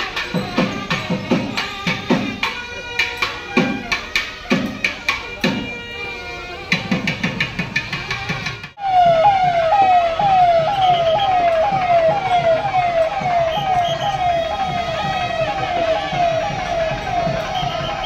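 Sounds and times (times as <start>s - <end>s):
electronic police siren: 8.8s - 18.0s.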